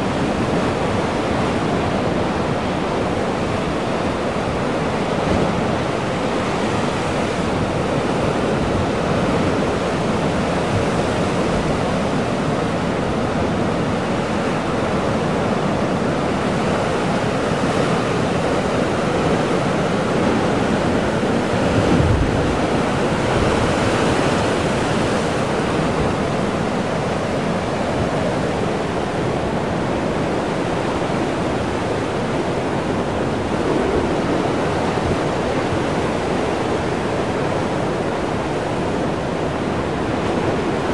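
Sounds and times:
ocean surf churning through rocks: 0.0 - 40.9.

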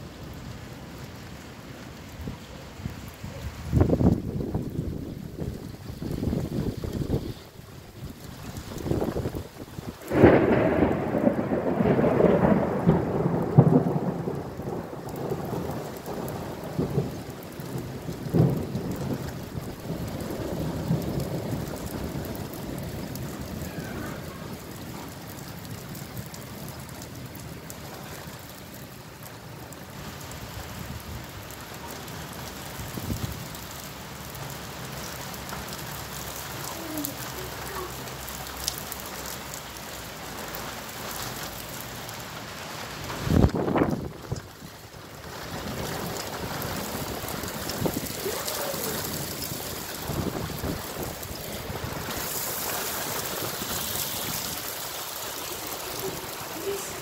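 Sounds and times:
steady rain: 0.0 - 57.0
thunder clap and rumble: 8.2 - 27.7, 42.4 - 57.0.

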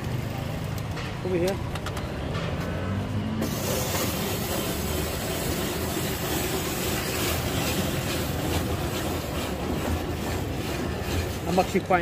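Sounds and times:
low traffic rumble: 0.0 - 12.0
street noise: 0.0 - 12.0.

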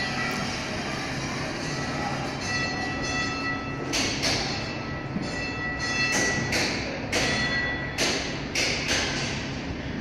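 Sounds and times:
high-pitched whine: 0.0 - 8.0.

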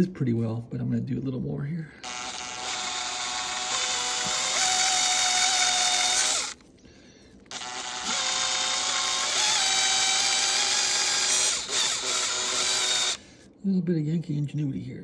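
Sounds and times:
cordless drill motor whine: 2.0 - 6.6, 7.5 - 13.2.

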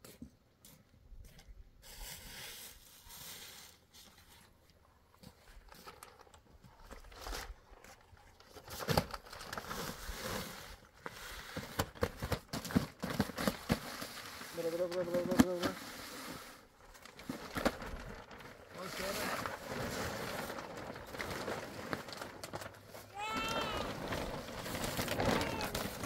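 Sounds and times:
plastic sheeting crinkling: 5.2 - 26.0.

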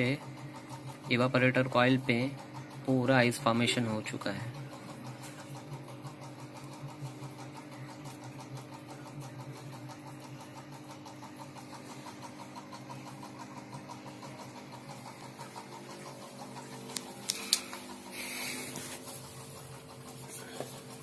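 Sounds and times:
steady machine hum: 0.0 - 21.0.

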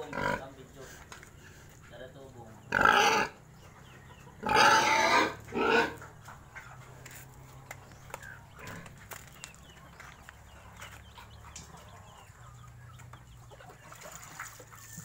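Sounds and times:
pig squealing: 2.7 - 3.4, 4.4 - 6.0.

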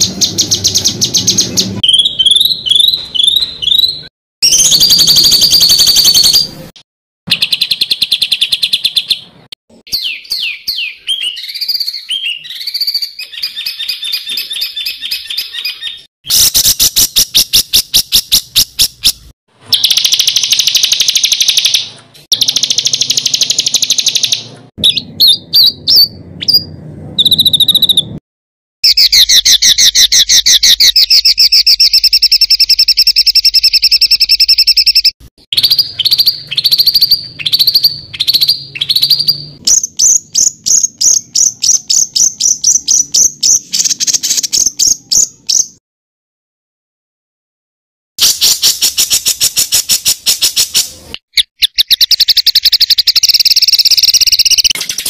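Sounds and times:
bird trills and rattles: 10.0 - 26.6, 28.8 - 45.7, 48.2 - 55.0
fast high bird chips: 11.3 - 24.6, 48.2 - 55.0.

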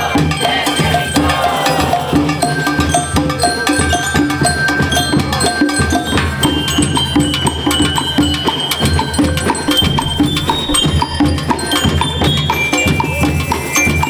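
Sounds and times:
bell-like melody notes: 0.0 - 14.0
drums steady beat: 0.0 - 14.0
marching band playing: 0.0 - 14.0.

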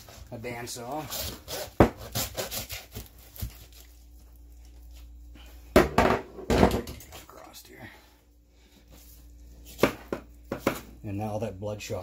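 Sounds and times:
hand saw rasping through bone: 1.0 - 3.1.

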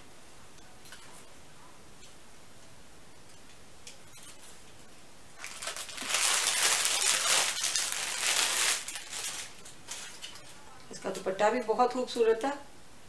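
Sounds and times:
cloth and paper rustling: 5.4 - 11.2.

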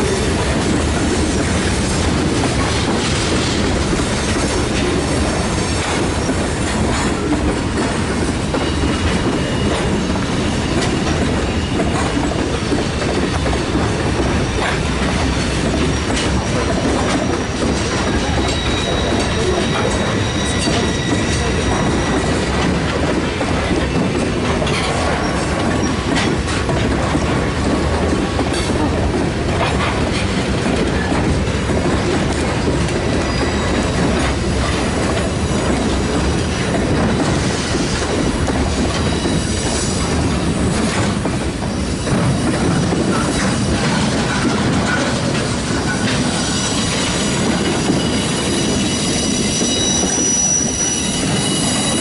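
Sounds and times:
train wheels rumbling on rail: 0.0 - 52.0
high wheel squeal: 16.0 - 22.5, 33.2 - 34.1, 46.2 - 52.0.

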